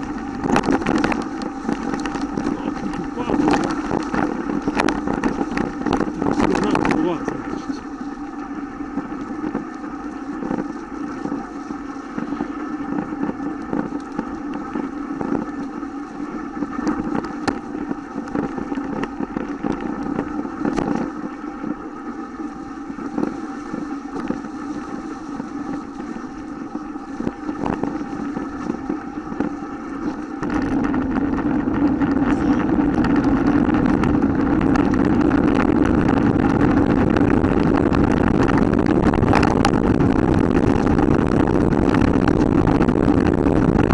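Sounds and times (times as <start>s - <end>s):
bike rattles and knocks: 0.0s - 7.4s, 27.2s - 38.6s
bike coasting hum: 0.0s - 43.9s
wind rumble on microphone: 0.0s - 43.9s.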